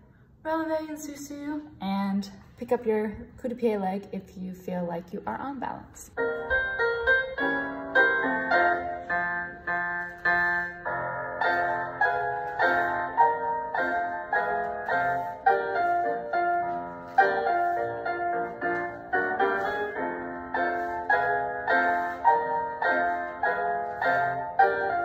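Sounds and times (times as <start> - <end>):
piano chords: 5.6 - 25.0.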